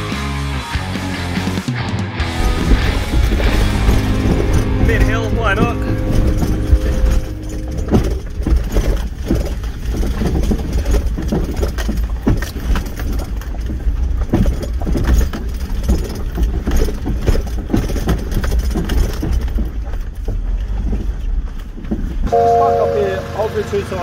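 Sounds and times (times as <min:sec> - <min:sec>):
engine and drivetrain rumble: 0:00.0 - 0:24.0
knocks and rattles from bumps: 0:02.2 - 0:22.3.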